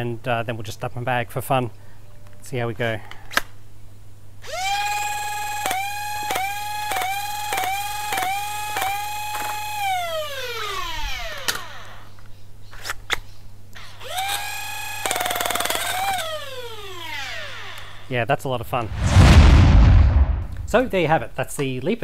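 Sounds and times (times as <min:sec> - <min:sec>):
flywheel motors whining: 0:04.4 - 0:12.2, 0:13.8 - 0:18.1.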